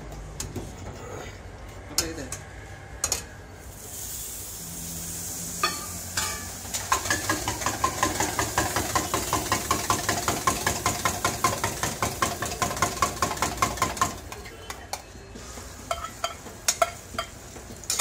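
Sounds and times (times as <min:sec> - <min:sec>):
hot griddle hissing: 0:03.4 - 0:14.1.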